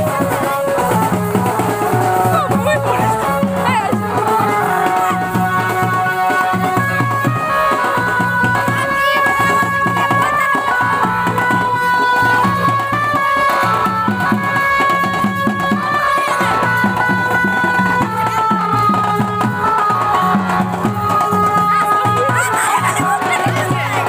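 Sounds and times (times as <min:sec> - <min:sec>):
steady drum beat: 0:00.0 - 0:24.0.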